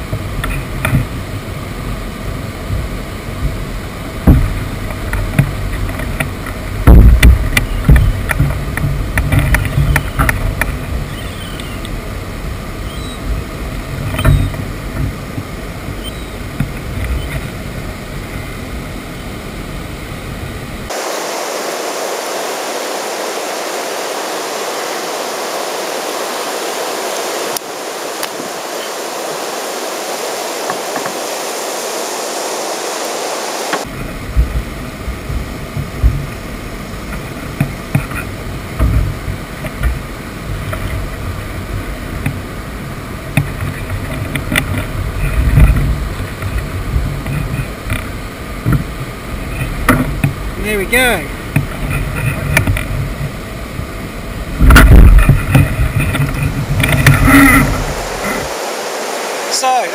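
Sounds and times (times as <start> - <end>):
water moving around kayak: 0.0 - 59.9
wind rumbling on microphone: 0.0 - 59.9
steady thin hiss: 20.9 - 33.9, 54.6 - 59.9.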